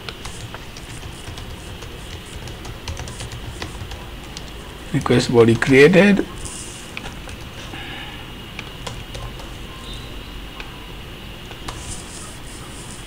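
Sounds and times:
computer keyboard clicks: 0:00.0 - 0:05.8, 0:06.9 - 0:07.6, 0:08.6 - 0:09.6
steady low hiss: 0:00.0 - 0:13.0.

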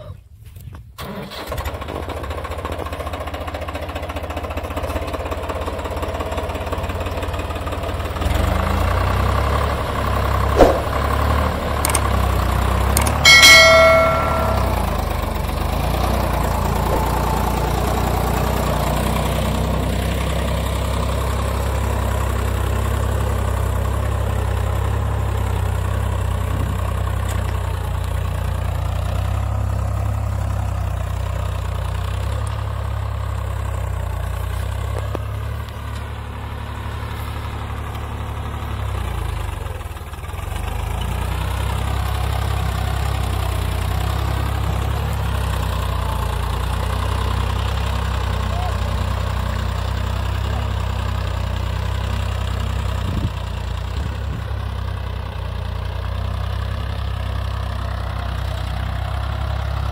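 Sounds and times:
tractor diesel engine running: 0:01.0 - 0:59.9
short high ringing tone: 0:13.0 - 0:15.3.

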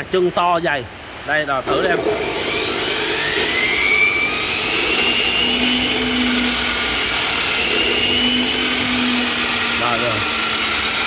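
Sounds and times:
electric saw whining: 0:01.7 - 0:11.0.

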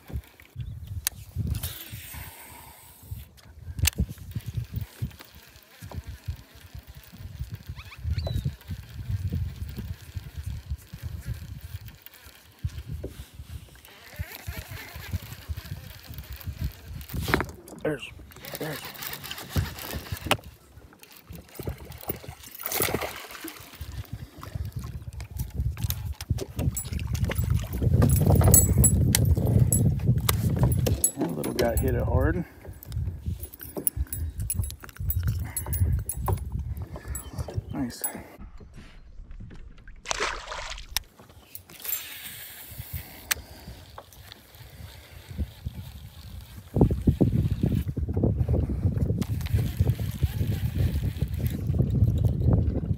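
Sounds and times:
fishing reel cranking: 0:01.5 - 0:37.4, 0:41.4 - 0:48.0, 0:49.2 - 0:52.4
water sloshing around kayak: 0:17.5 - 0:34.0
water splashing: 0:22.0 - 0:23.9, 0:39.8 - 0:41.1.

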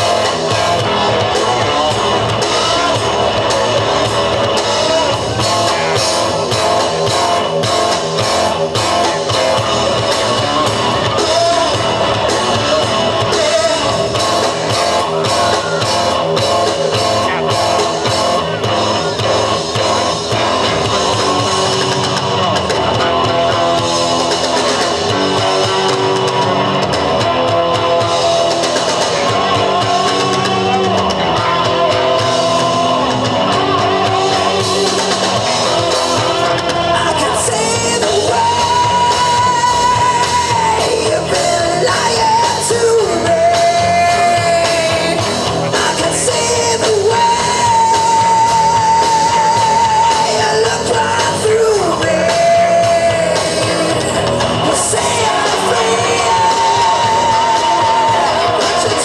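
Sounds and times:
live rock band playing: 0:00.0 - 0:59.0
singer holding long notes: 0:27.2 - 0:59.0.

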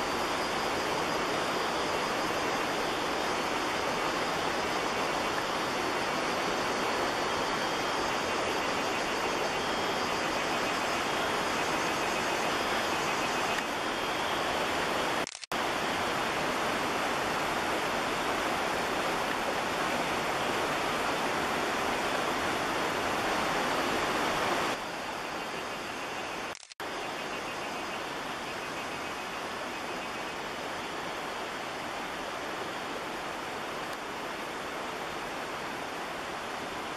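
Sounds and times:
stream rushing: 0:00.0 - 0:36.9.

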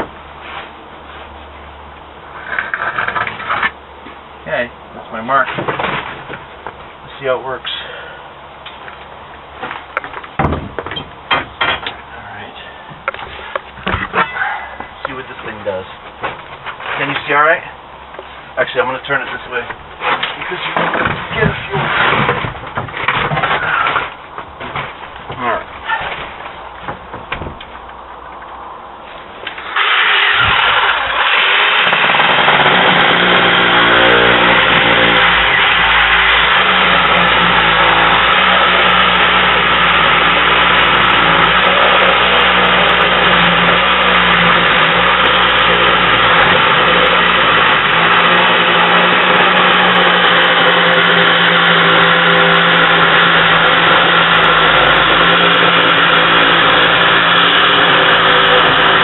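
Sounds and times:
power saw cutting plywood: 0:18.8 - 0:26.2, 0:29.5 - 0:59.0.

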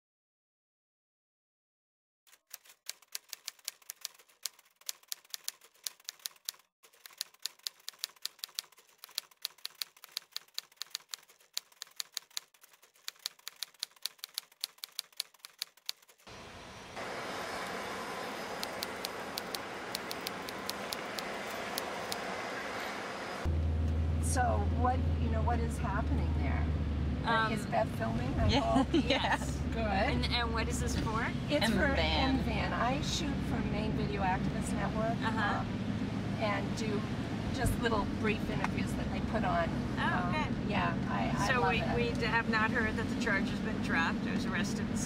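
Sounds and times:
typewriter key clicks: 0:02.4 - 0:16.2.

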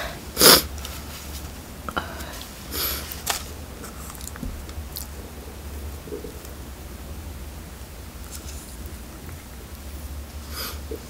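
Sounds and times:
breathy sniff: 0:02.0 - 0:03.2, 0:10.4 - 0:11.0.

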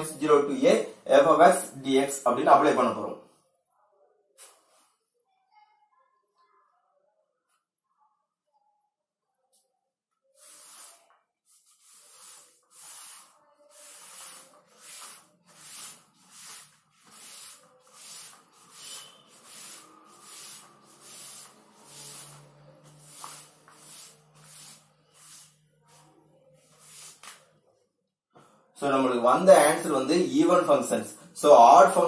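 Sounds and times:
cloth rubbing on chalkboard: 0:10.4 - 0:27.4.

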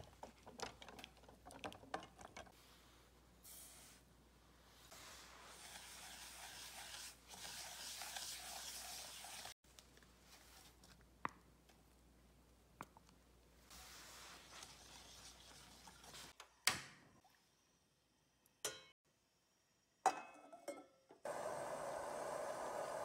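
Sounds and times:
whisk swishing in metal bowl: 0:04.9 - 0:09.6, 0:13.7 - 0:16.4.

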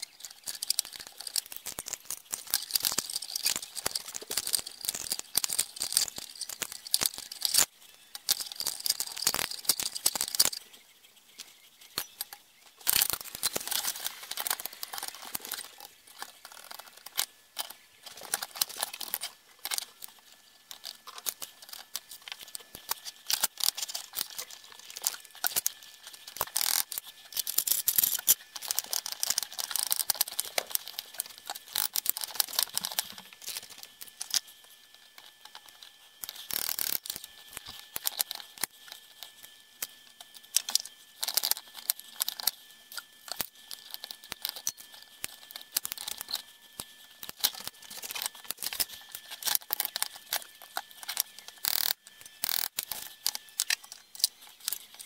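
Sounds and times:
metal parts and tools clinking: 0:00.0 - 0:10.6, 0:11.9 - 0:34.5.

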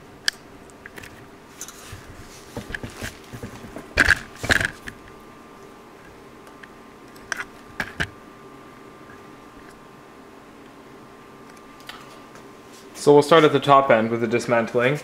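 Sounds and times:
faint steady hum: 0:00.0 - 0:15.0
handling knocks and rustles: 0:00.9 - 0:05.2.

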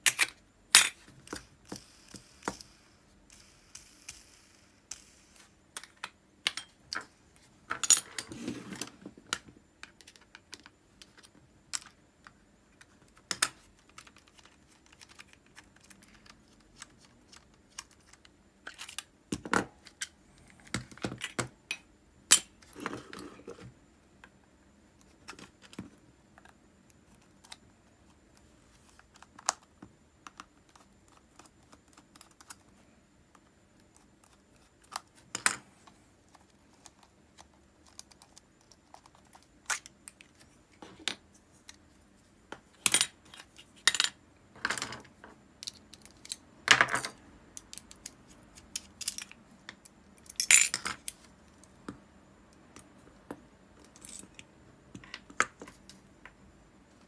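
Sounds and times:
small metal parts clicking: 0:47.6 - 0:49.4.

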